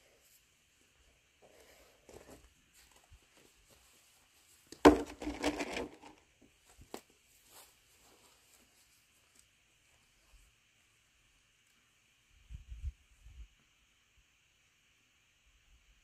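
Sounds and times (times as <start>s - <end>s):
rustling and scraping: 1.4s - 9.4s.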